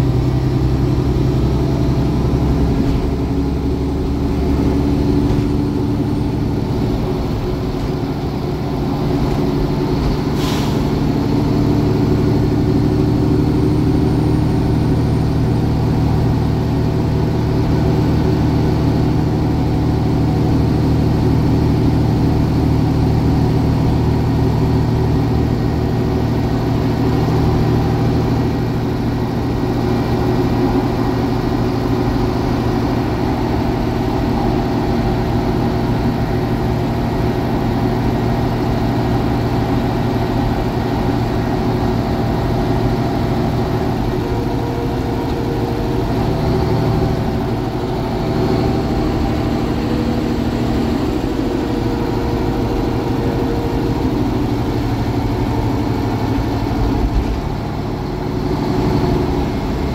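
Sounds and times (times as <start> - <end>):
bus diesel engine running: 0.0 - 59.9
road noise: 0.0 - 59.9
brief hiss: 10.4 - 11.0.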